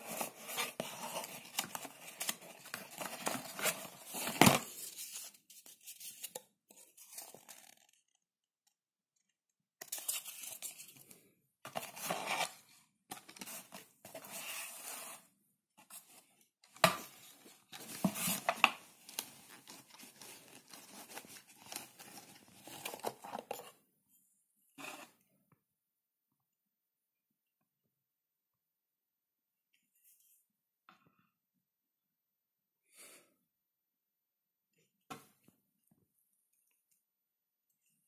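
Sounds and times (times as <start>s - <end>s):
cardboard and paper rustling: 0.0s - 8.0s, 11.7s - 15.2s, 15.8s - 23.8s.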